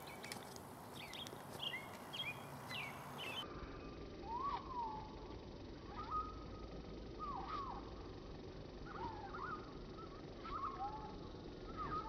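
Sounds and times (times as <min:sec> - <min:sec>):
low outdoor background: 0:00.0 - 0:12.0
rising and falling bird call: 0:00.0 - 0:12.0
short high bird chirps: 0:01.0 - 0:03.4.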